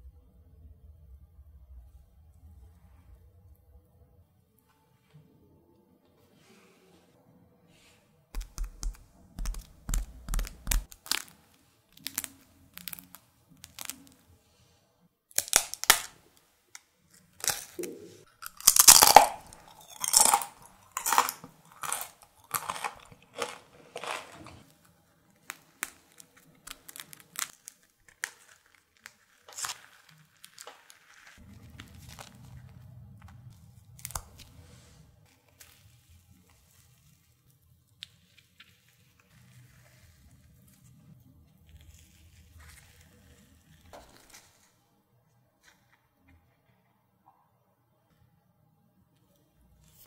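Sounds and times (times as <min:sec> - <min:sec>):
bread crumb tearing: 0:08.4 - 0:14.2, 0:15.3 - 0:16.2, 0:17.1 - 0:44.8
toast crust crackling: 0:08.4 - 0:14.2, 0:17.3 - 0:32.7.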